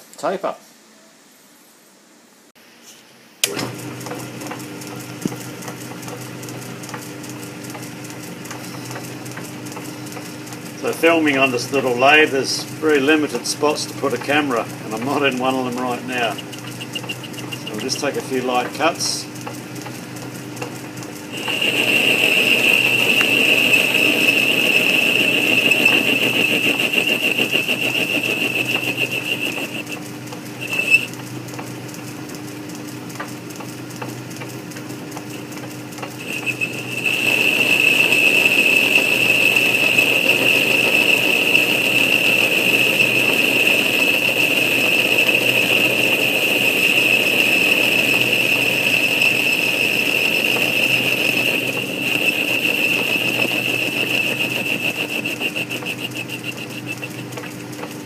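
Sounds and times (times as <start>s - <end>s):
lathe running: 3.5s - 31.4s, 35.2s - 58.0s
high-pitched cutting squeal: 15.6s - 17.9s, 21.3s - 31.1s, 36.2s - 57.3s.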